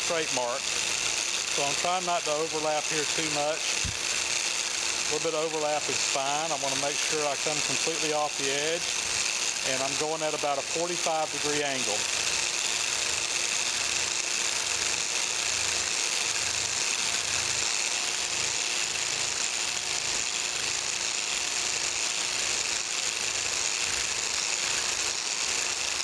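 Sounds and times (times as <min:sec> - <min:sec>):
blade scraping metal surface: 0:00.0 - 0:12.0
electric power scraper running: 0:00.0 - 0:26.0.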